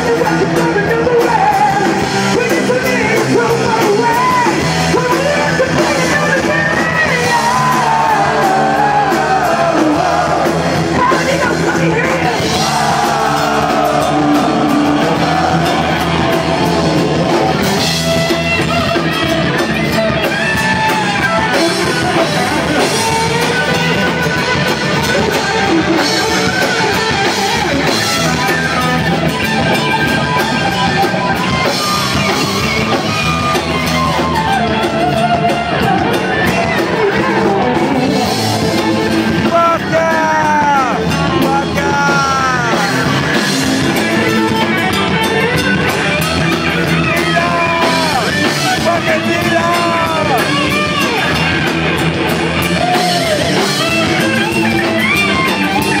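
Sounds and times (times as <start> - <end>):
bass and drums: 0.0 - 56.0
electric guitar solo with pitch bends: 13.5 - 56.0.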